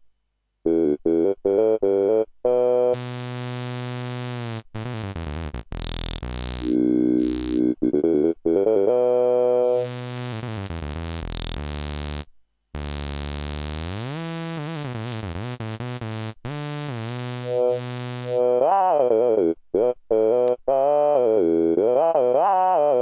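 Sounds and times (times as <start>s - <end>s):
synthesizer chords sweeping: 6.3s - 11.0s.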